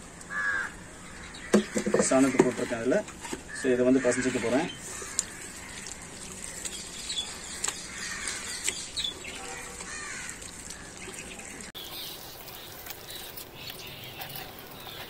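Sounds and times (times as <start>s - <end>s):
birds chirping: 0.0s - 15.0s
wet squelching and sloshing: 4.0s - 15.0s.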